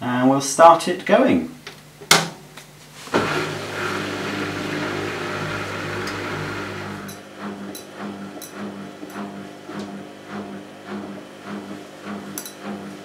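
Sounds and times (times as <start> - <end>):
washing machine motor hum: 3.0 - 13.0.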